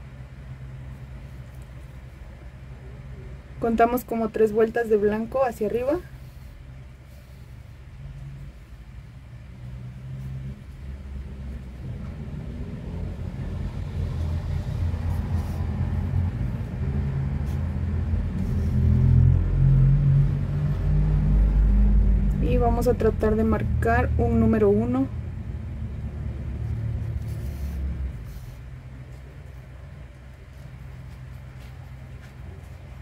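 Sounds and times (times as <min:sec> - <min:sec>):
road vehicle engine rumble: 0:05.5 - 0:33.0.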